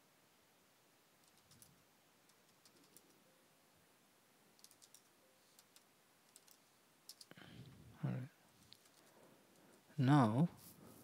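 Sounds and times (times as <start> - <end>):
keyboard typing: 1.2 - 3.2, 4.6 - 7.4, 8.7 - 9.7.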